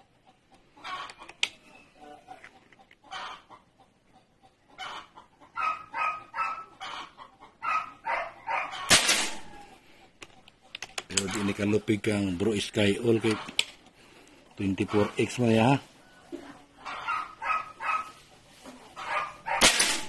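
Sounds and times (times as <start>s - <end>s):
chicken clucking: 0.0s - 19.6s
loud sharp crack: 8.9s - 9.5s, 19.6s - 20.0s.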